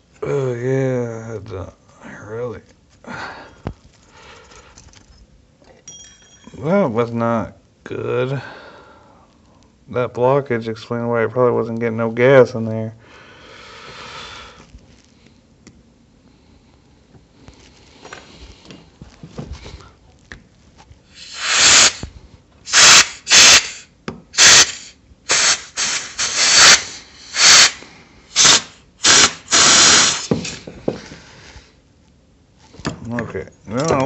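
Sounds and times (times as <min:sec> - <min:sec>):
air blow gun blasts: 0:21.2 - 0:22.1, 0:22.7 - 0:30.7.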